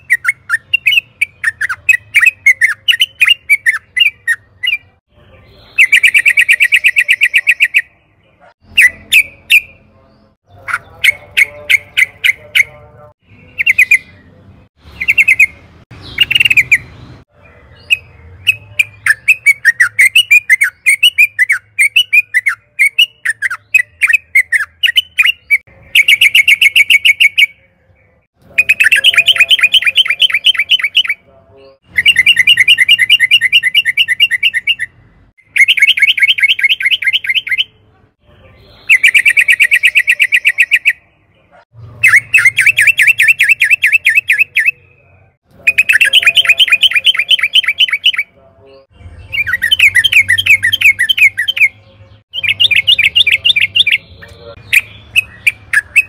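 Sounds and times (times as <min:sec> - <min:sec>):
bird chirping notes: 0:00.0 - 0:56.0.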